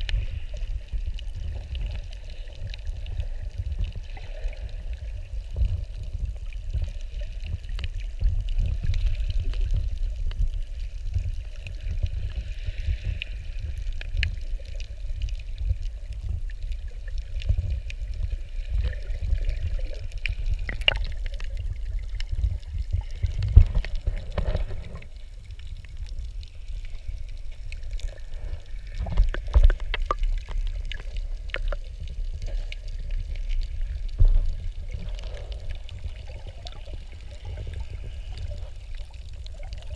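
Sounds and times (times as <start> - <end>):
underwater seawater rushing: 0.0 - 39.9
sharp underwater clicks and knocks: 20.6 - 21.5, 22.2 - 25.1, 29.0 - 32.0, 34.1 - 35.6.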